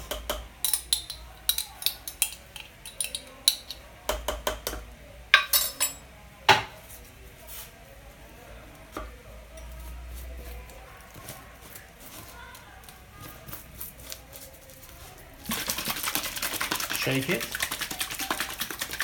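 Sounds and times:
metal spoon clinking on glass jars: 0.6s - 3.8s, 5.4s - 6.0s.

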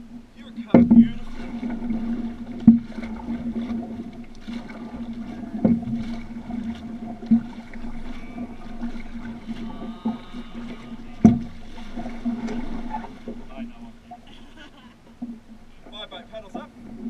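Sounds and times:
steady low hum: 0.0s - 17.0s
sharp knocks on canoe hull: 0.7s - 1.8s, 5.6s - 7.5s, 11.2s - 13.4s.

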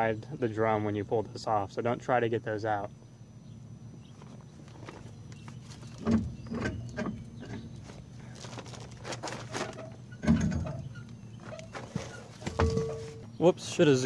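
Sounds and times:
metal scraping and rattling: 8.6s - 13.3s
heavy metal clunk: 10.1s - 13.3s
dull metal knocks: 11.5s - 13.3s.

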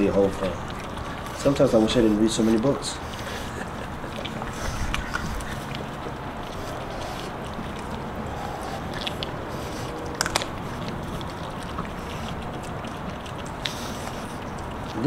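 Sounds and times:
puppies chewing and tearing: 0.0s - 15.0s
bone crunching: 3.9s - 15.0s.

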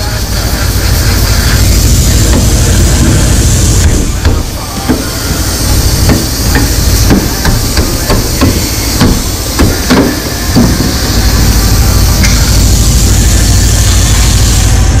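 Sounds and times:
steady low hum: 0.0s - 15.0s
hammer striking sheet metal: 2.2s - 11.5s.

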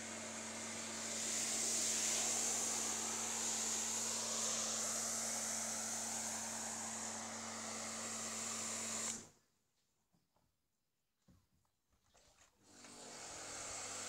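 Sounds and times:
pressure washer motor hum: 0.0s - 9.3s, 12.8s - 14.0s
pressure washer spray hiss: 0.5s - 9.2s.

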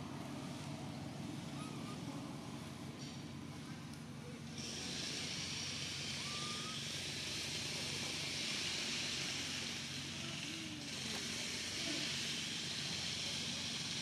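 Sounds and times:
high hiss: 4.6s - 14.0s
short rising whistle: 6.2s - 6.8s.

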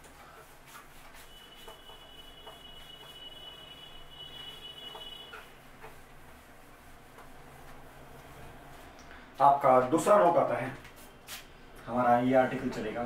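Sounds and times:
duster wiping a whiteboard: 0.0s - 8.9s.

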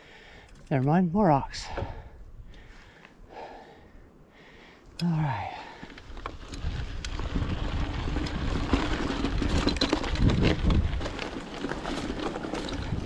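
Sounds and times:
bike rattling: 5.5s - 13.0s
tyres crunching on stones: 5.7s - 13.0s.

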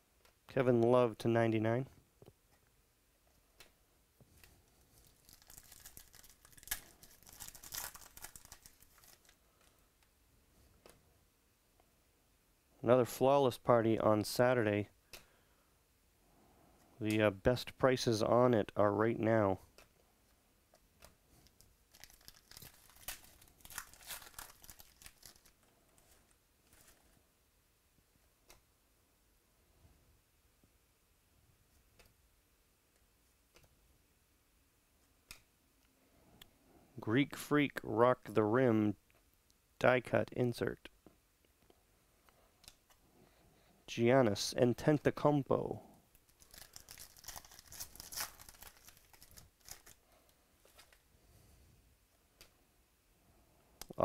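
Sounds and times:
cards rustling: 4.3s - 9.8s, 21.0s - 27.2s, 46.2s - 50.0s, 50.6s - 51.0s
foil wrapper tearing and crinkling: 5.0s - 9.4s, 21.5s - 25.6s, 46.3s - 50.0s.

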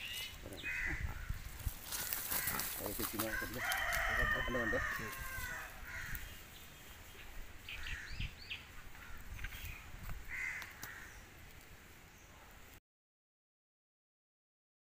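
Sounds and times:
faint outdoor background noise: 0.0s - 12.8s.

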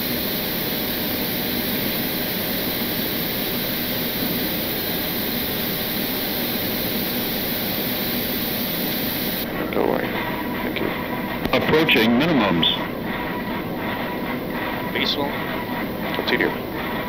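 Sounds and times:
rushing airflow: 0.0s - 9.6s
jet engine noise: 0.0s - 17.0s.

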